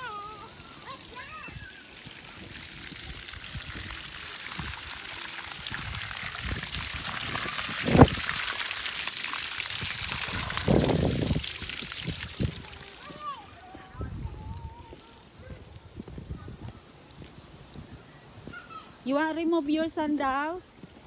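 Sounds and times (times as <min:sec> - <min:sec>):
water splashing into trough: 0:00.8 - 0:13.4.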